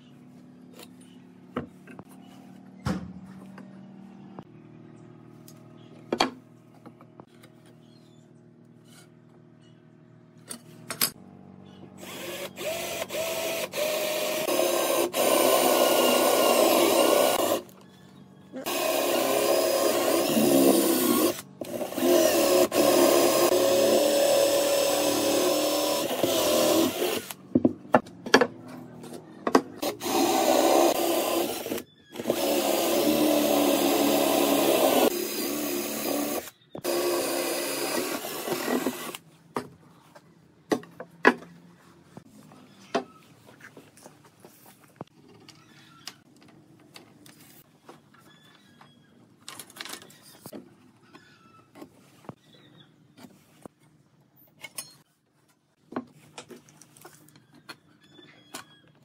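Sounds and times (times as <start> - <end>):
cordless drill boring into wood: 12.0 - 17.6, 18.6 - 27.4, 29.8 - 39.2.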